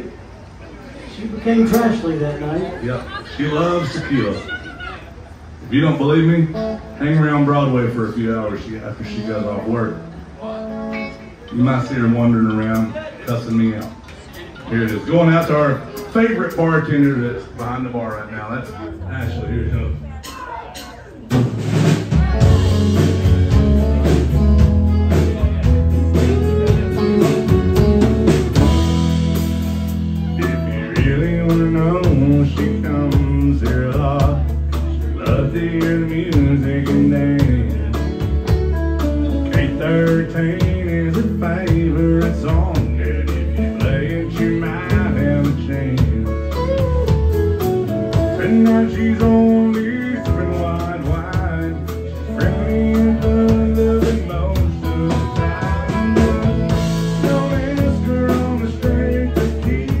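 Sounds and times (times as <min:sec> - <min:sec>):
bass guitar: 0:00.0 - 1:00.0
drums: 0:00.0 - 1:00.0
acoustic guitar: 0:01.4 - 1:00.0
electric guitar: 0:08.6 - 0:16.2, 0:18.7 - 1:00.0
man singing: 0:30.2 - 0:38.5, 0:39.2 - 0:47.2, 0:48.2 - 1:00.0
fiddle: 0:41.8 - 0:48.3.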